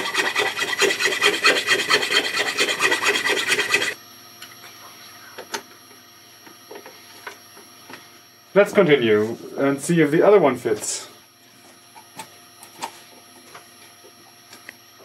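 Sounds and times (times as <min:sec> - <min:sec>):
rasping scrape on plywood: 0:00.0 - 0:04.0.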